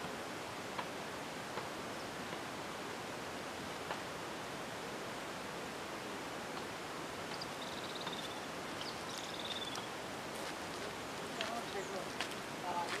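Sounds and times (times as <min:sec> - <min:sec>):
open-air hiss: 0:00.0 - 0:13.0
small bird trilling: 0:07.4 - 0:09.9.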